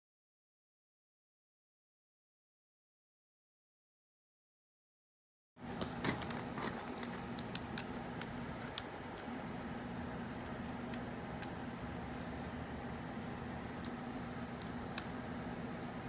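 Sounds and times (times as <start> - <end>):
low room hum: 5.6 - 16.0.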